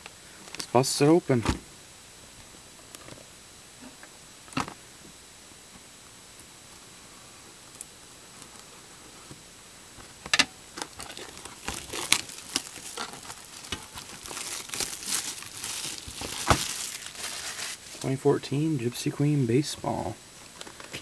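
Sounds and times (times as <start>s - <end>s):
plastic wrap crinkling: 10.7s - 18.2s.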